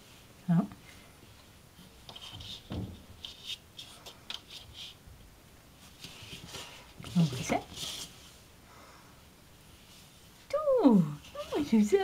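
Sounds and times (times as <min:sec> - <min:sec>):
soft bump: 0:02.6 - 0:03.1
hand rubbing cat fur: 0:05.8 - 0:08.4, 0:11.0 - 0:12.0.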